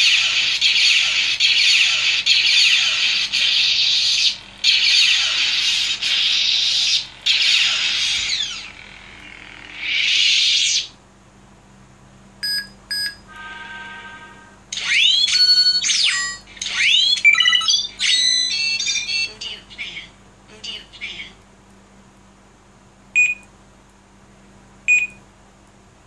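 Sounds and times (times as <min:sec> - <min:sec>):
low electronic hum: 0:00.0 - 0:26.0
short beeps: 0:12.4 - 0:13.2, 0:23.2 - 0:23.5, 0:24.9 - 0:25.2.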